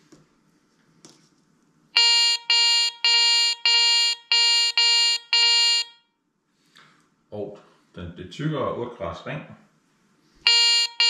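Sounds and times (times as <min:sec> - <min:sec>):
metal detector beeps: 0:02.0 - 0:06.0, 0:10.5 - 0:11.0.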